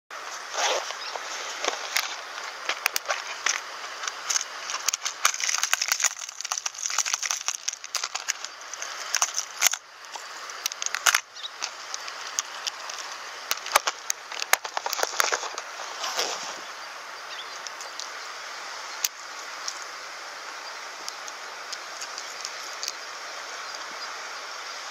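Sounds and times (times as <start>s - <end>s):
steady hiss: 0.1s - 24.9s
hand rustling: 0.4s - 9.8s
plastic lures clicking and rattling: 2.7s - 9.8s, 10.5s - 15.6s.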